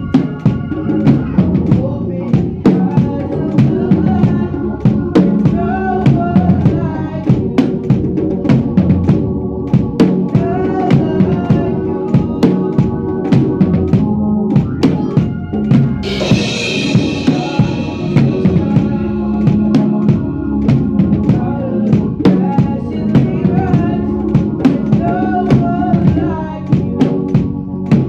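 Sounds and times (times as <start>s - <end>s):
drum kit playing a steady beat: 0.0s - 28.0s
sustained low instrument notes: 11.3s - 22.1s
cymbal crash: 16.0s - 18.8s.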